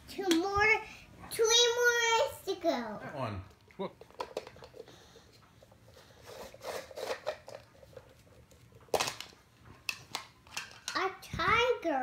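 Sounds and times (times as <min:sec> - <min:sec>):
plastic egg snapping apart: 0:08.9 - 0:11.0.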